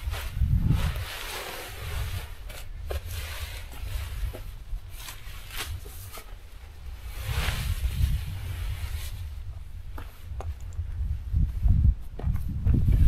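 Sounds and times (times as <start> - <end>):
tent fabric rustling: 0.0 - 9.5
wind rumble on microphone: 0.0 - 13.0.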